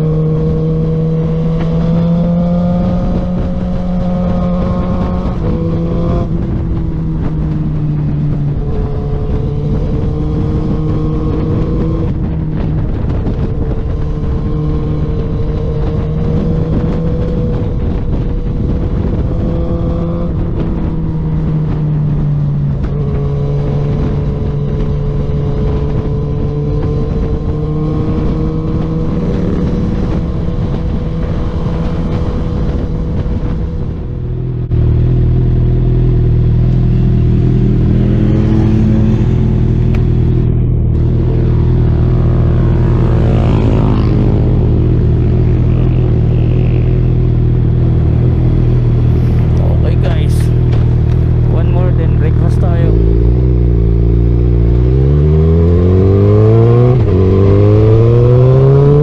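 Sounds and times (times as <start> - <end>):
motorcycle engine running: 0.0 - 59.0
road and wind noise: 0.0 - 59.0.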